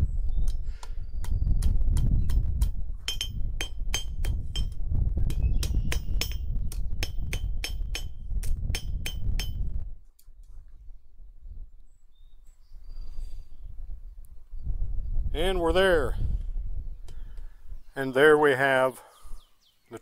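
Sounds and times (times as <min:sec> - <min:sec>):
hammer striking steel on anvil: 0:02.3 - 0:09.6.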